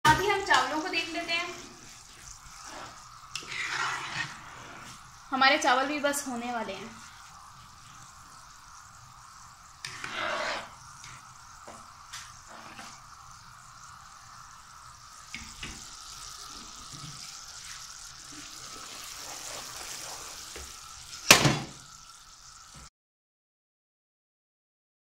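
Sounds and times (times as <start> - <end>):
syrup boiling and bubbling: 0.1 - 22.9.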